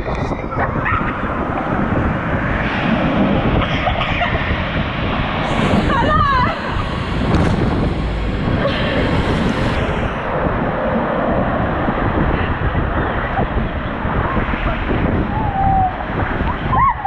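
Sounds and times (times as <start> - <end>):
wind noise on microphone: 0.0 - 17.0
water rushing: 1.2 - 11.6.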